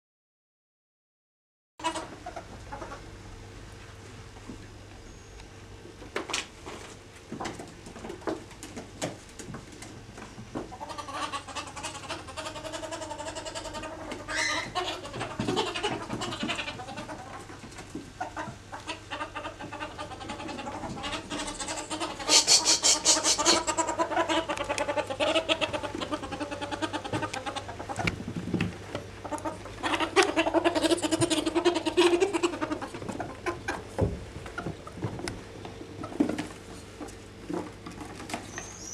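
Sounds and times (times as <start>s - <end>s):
ferrets clucking: 1.8s - 3.1s, 10.6s - 38.9s.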